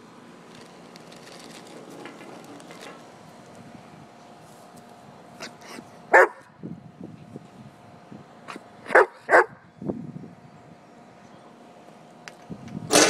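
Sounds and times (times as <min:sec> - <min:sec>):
dog barking: 0:06.1 - 0:06.5, 0:08.9 - 0:09.6.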